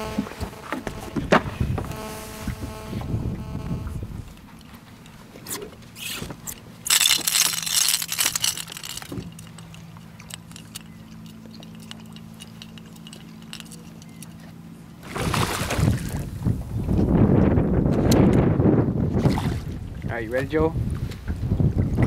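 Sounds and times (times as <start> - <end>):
lure rattle clicking: 5.0 - 14.4
fish splash: 15.0 - 16.2.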